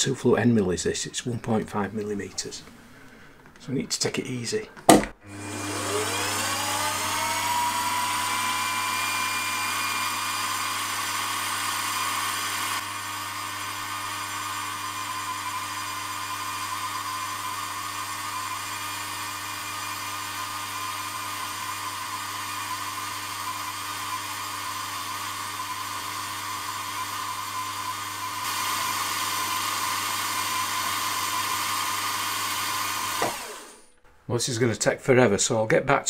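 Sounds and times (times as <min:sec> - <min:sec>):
milling machine whining hum: 0:05.2 - 0:33.8.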